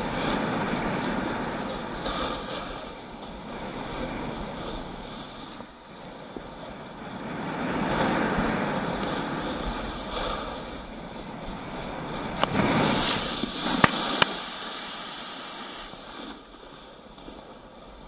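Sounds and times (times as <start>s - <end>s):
sliding over snow: 0.0s - 18.0s
wind rushing over helmet camera: 0.0s - 18.0s
sharp knocks in snow: 12.4s - 14.4s.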